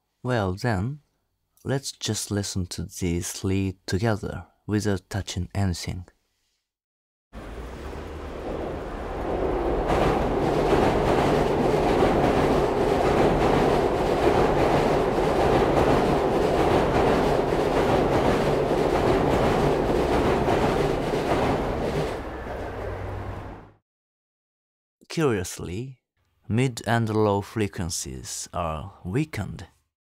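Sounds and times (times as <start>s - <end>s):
train wheel clatter: 7.4s - 23.7s
train rumbling over bridge: 7.4s - 23.8s.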